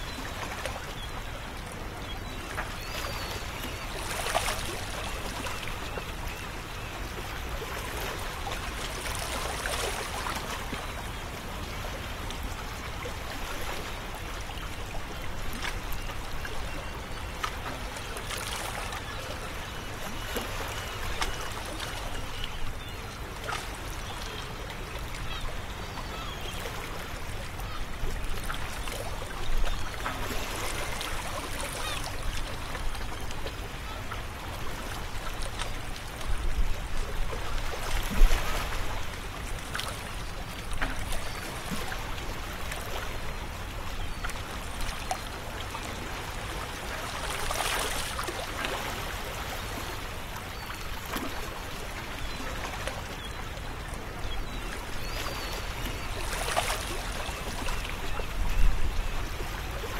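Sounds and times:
small waves washing onto shore: 26.1 - 59.9.

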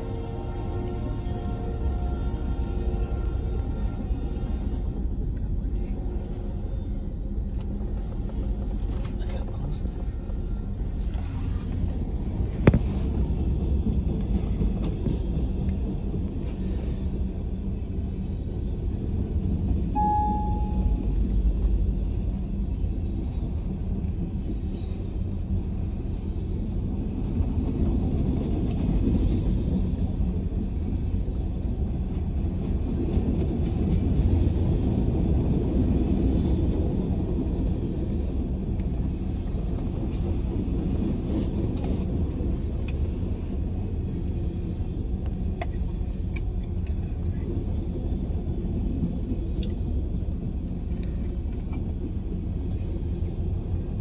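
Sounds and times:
steel train wheels rumbling on rail: 0.0 - 54.0
short beep: 20.0 - 21.0.

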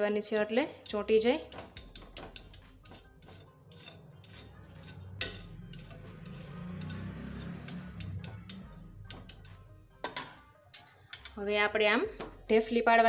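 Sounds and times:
spatula scraping metal plate: 0.3 - 10.4.

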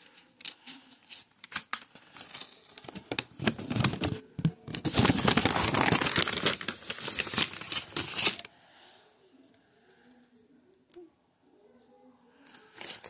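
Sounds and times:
paper crumpling: 0.0 - 8.5, 12.5 - 13.0.

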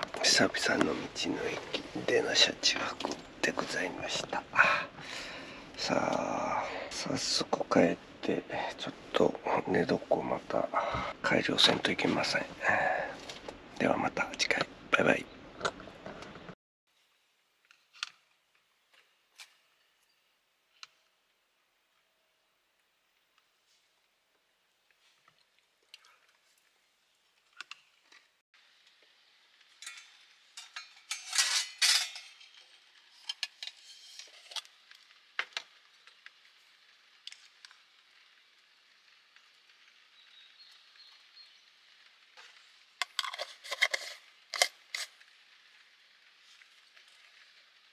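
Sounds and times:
steady hiss: 0.0 - 15.5, 16.2 - 47.9
metal spoon scraping containers: 29.9 - 32.6, 43.0 - 45.2.

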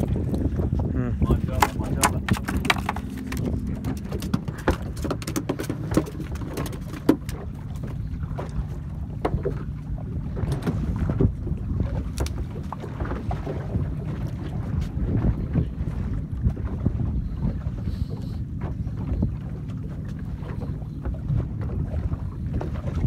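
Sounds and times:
water slapping boat hull: 0.0 - 23.0
wind buffeting microphone: 0.0 - 23.0
sharp knocks and clicks: 1.5 - 7.4.

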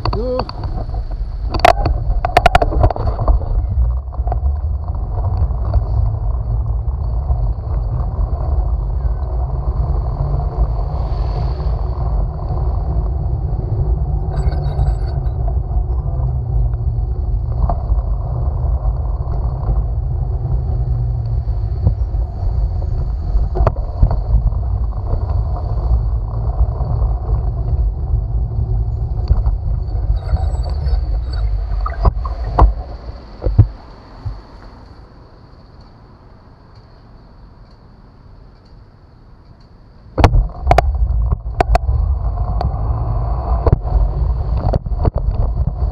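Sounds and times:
wind buffeting microphone: 0.0 - 35.0, 40.1 - 45.9
bicycle road rumble: 0.0 - 45.9.

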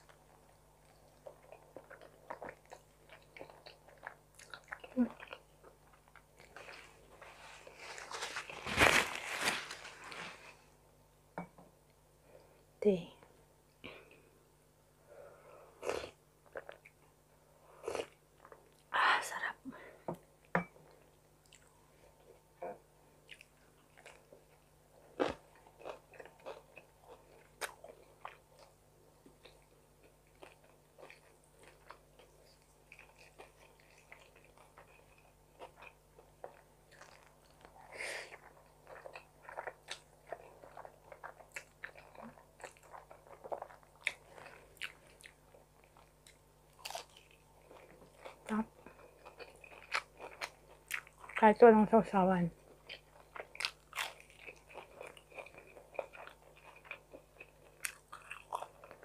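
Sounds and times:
person chewing and biting food: 23.3 - 51.4, 52.7 - 59.0.

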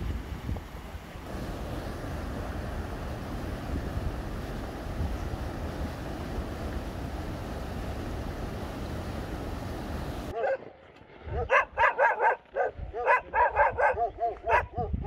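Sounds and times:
stream rushing over rocks: 0.0 - 10.3
dogs barking: 10.3 - 10.6, 11.3 - 14.9.

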